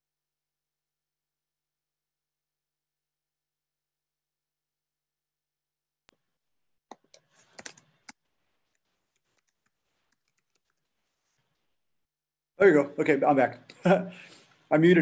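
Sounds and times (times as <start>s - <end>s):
faint clicks and taps: 6.9s - 11.7s.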